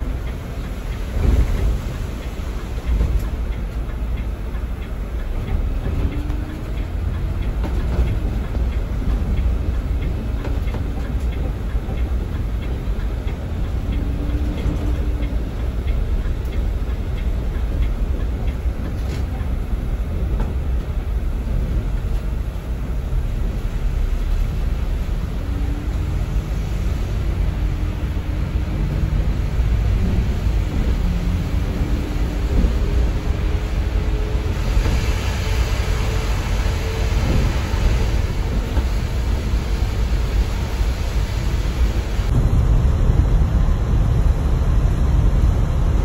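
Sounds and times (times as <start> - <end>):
bus road and engine rumble: 0.0 - 46.0
rain: 0.0 - 46.0.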